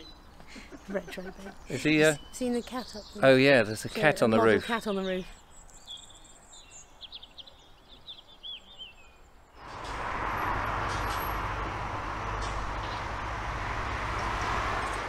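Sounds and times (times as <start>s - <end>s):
small bird chirping: 0.0s - 10.0s
rushing noise with low rumble: 9.6s - 15.0s.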